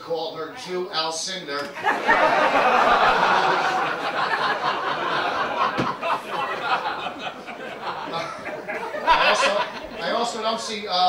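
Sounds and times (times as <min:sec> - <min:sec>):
audience laughing: 0:01.6 - 0:10.6
thump: 0:05.7 - 0:06.0.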